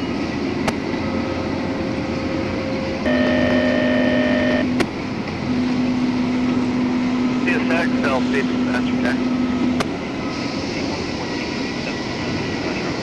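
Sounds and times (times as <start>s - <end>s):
diesel locomotive running: 0.0s - 13.0s
steady tone: 3.0s - 4.8s.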